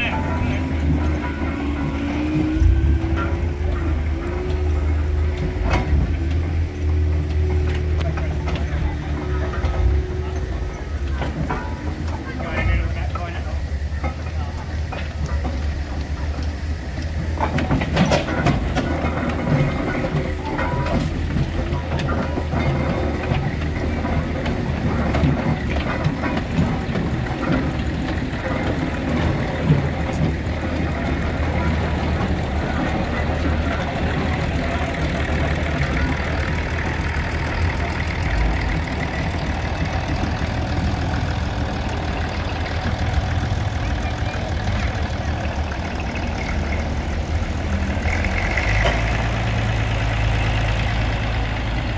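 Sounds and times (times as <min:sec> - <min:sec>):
crowd chatter: 0:00.0 - 0:51.9
low engine hum: 0:00.0 - 0:51.9
steam traction engine moving: 0:00.0 - 0:51.9
tractor engine running: 0:00.0 - 0:51.9.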